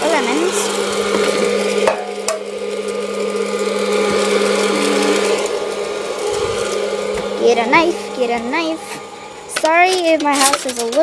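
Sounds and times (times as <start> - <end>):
popcorn machine fan humming: 0.0 - 11.0.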